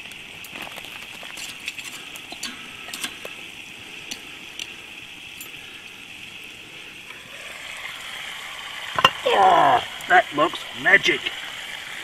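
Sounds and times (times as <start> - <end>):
metallic clinks of coals and pot: 0.0 - 7.2, 8.9 - 9.3
steady high hiss: 0.0 - 12.0.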